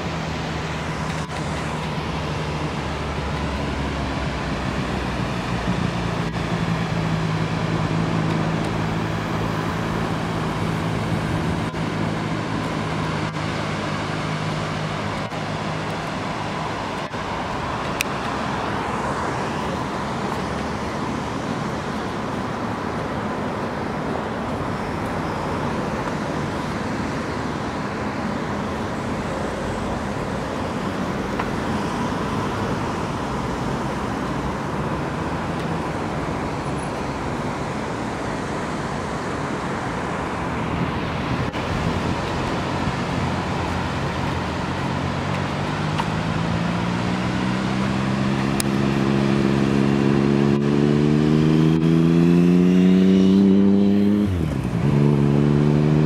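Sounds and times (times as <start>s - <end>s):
rushing road noise: 0.0s - 56.0s
vehicle engine accelerating: 40.8s - 56.0s.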